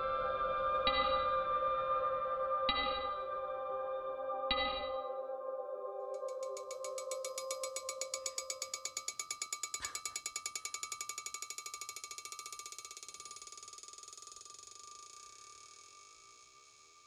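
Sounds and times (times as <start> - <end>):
steel ball bouncing on anvil: 0.9 - 1.2, 2.7 - 3.3, 4.5 - 5.1, 6.2 - 16.1
anvil ringing: 2.7 - 3.3, 4.5 - 5.1, 6.3 - 11.2.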